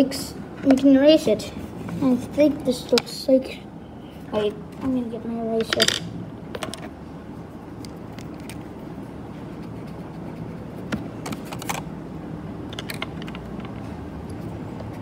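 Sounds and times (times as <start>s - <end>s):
low background hum: 0.0s - 15.0s
eraser rubbing on paper: 9.4s - 10.9s.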